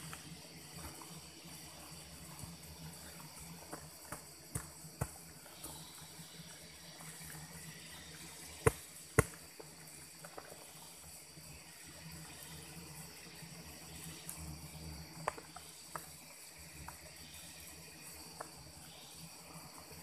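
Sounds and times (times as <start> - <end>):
wasps humming: 0.0 - 20.0
blade knocking and scraping earth: 8.6 - 9.4.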